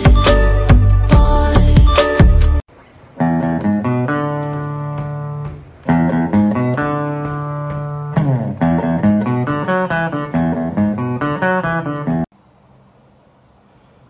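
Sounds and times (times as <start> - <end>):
plucked guitar music: 3.2 - 12.3.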